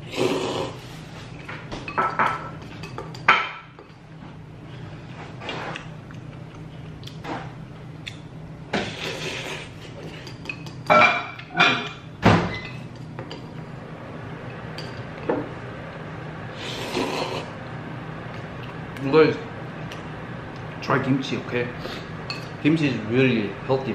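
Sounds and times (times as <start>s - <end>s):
man slurping noodles: 0.0s - 0.9s, 8.8s - 9.8s, 16.6s - 17.5s.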